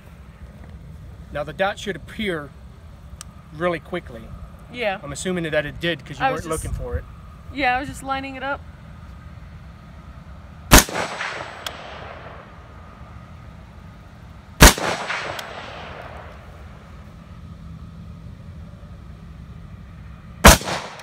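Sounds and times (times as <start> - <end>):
rifle shots with echo: 10.7 - 12.7, 14.6 - 16.7, 20.4 - 21.0.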